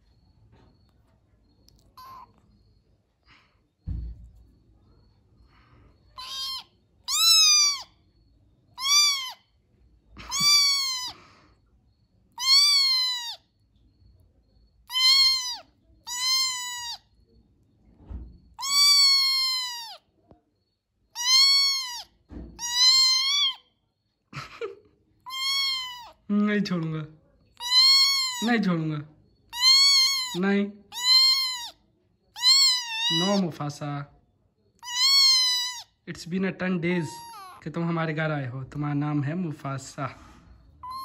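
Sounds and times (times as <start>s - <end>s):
kitten meowing: 1.8s - 2.4s, 6.2s - 7.9s, 8.8s - 9.4s, 10.2s - 11.2s, 12.4s - 13.4s, 14.8s - 17.1s, 18.5s - 20.0s, 21.2s - 23.6s, 25.3s - 26.2s, 27.6s - 28.7s, 29.5s - 31.8s, 32.4s - 33.6s, 34.8s - 36.0s, 36.8s - 37.7s, 40.8s - 41.0s.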